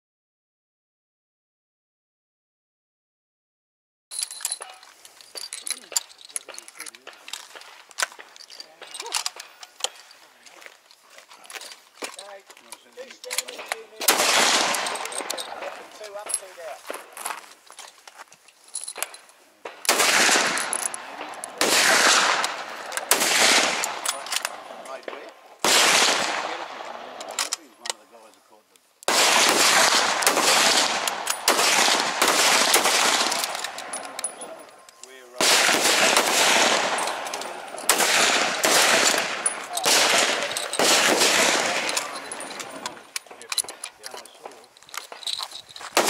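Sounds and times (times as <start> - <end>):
rifle shots with echo: 13.4 - 16.0, 19.6 - 27.4, 29.1 - 34.6, 35.4 - 43.8.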